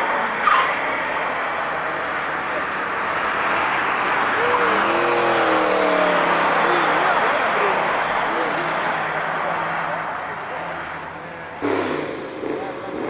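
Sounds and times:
race car engines: 0.0s - 13.0s.

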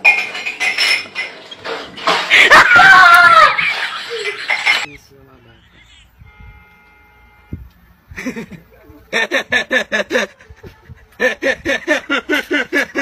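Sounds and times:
hearty laughter: 8.1s - 13.0s.

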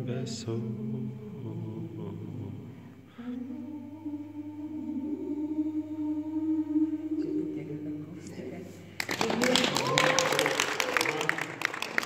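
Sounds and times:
woman singing unaccompanied: 3.4s - 8.5s.

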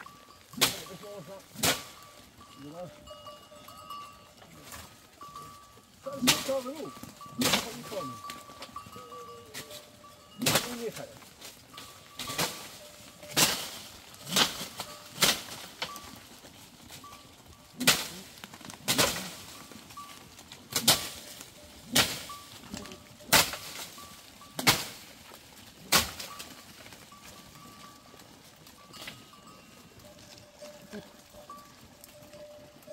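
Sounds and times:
chopping blows into branches: 1.6s - 2.0s, 10.4s - 10.8s, 12.2s - 12.7s, 13.3s - 15.7s, 17.8s - 18.1s, 18.8s - 19.4s, 20.7s - 21.2s, 21.9s - 22.3s, 23.3s - 24.0s, 24.6s - 25.0s, 25.9s - 26.4s.

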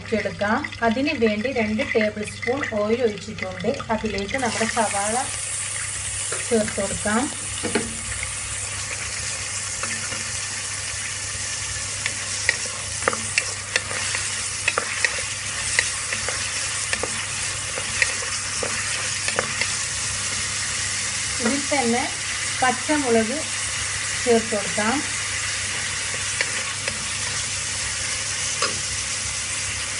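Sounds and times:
onions sizzling in oil: 0.0s - 29.9s
wooden spoon scraping pot: 12.0s - 20.5s, 25.6s - 28.8s.

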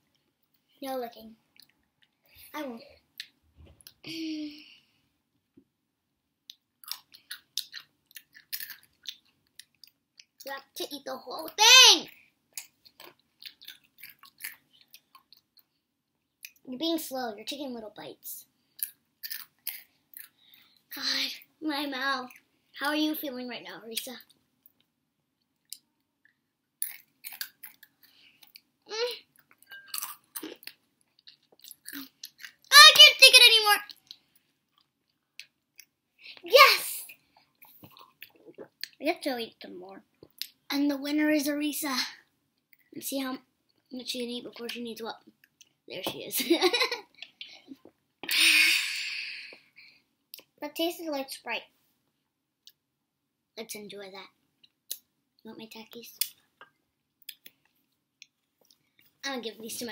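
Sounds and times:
chewing crunchy chips: 6.8s - 10.4s, 12.6s - 15.7s, 18.8s - 20.4s, 25.6s - 28.7s.

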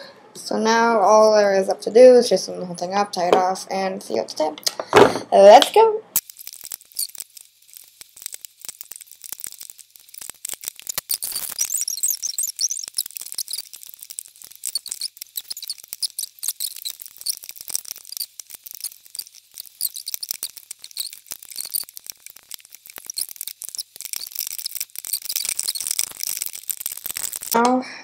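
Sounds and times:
rubber bands squeaking and stretching: 6.2s - 27.6s
small clicks: 6.2s - 27.7s.

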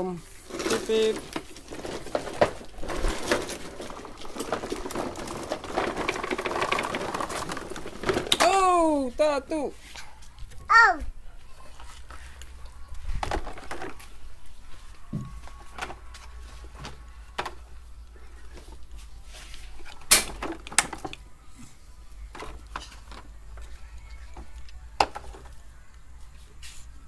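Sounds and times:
plastic toy trucks clattering: 0.4s - 9.6s, 11.8s - 21.3s, 22.1s - 26.1s.

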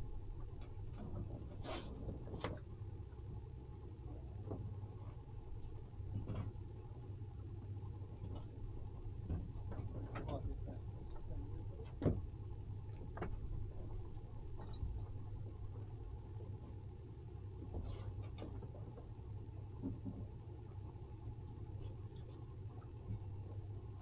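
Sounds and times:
boat engine idling: 0.0s - 24.0s
knocks and clicks of tow line: 0.4s - 3.4s, 4.4s - 6.8s, 8.2s - 16.6s, 17.6s - 20.6s, 21.7s - 23.7s.

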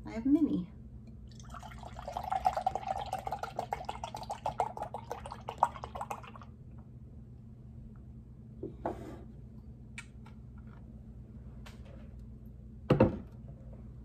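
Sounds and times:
milk pouring into a glass: 1.2s - 6.6s.

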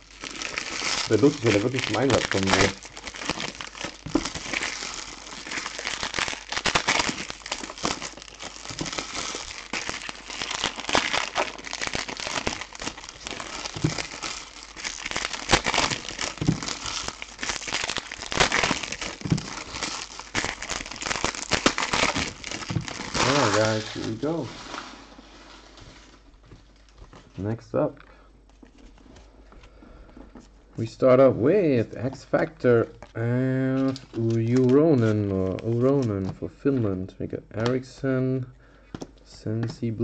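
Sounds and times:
foil wrappers crinkling: 0.0s - 27.3s, 32.0s - 36.5s.

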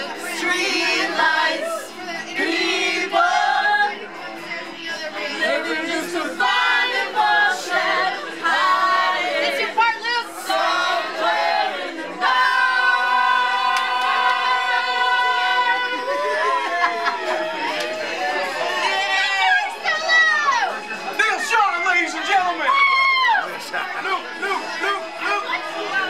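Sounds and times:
group singing loudly: 0.0s - 20.6s.

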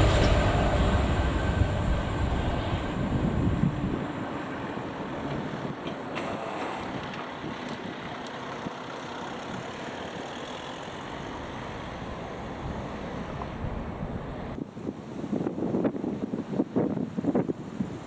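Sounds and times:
wind noise on microphone: 0.0s - 8.2s, 12.5s - 18.0s
road traffic: 0.0s - 14.8s.

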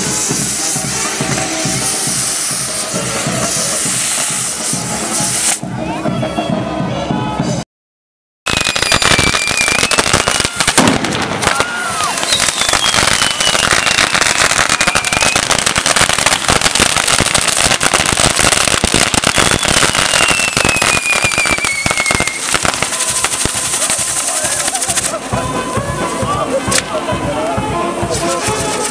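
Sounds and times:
fireworks crackling and popping: 0.0s - 6.0s, 8.5s - 28.9s
whistles falling in pitch: 11.6s - 14.2s, 19.6s - 22.4s.

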